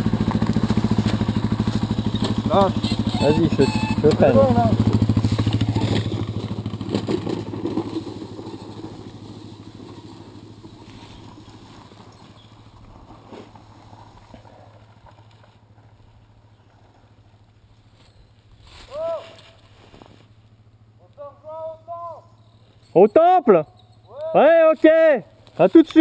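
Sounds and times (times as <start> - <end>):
motorcycle engine riding off: 0.0 - 18.6.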